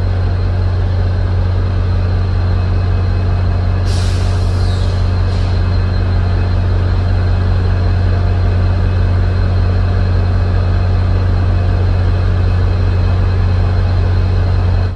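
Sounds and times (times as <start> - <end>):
diesel engine idling: 0.0 - 14.9.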